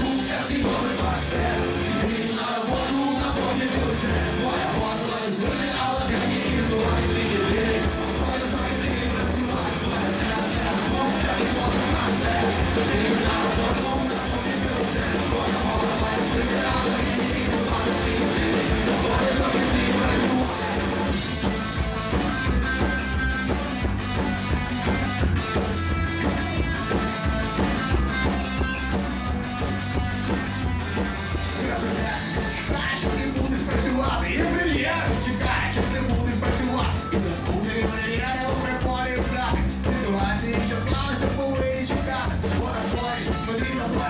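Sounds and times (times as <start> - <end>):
man singing: 0.0 - 21.4, 31.4 - 44.0
drums: 0.0 - 44.0
electric guitar: 0.0 - 44.0
keyboard: 0.0 - 44.0
clipped steady beat: 5.5 - 44.0.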